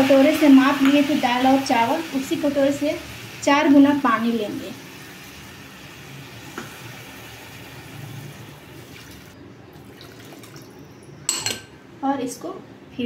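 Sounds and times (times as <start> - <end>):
water pouring into pot: 5.1 - 10.8.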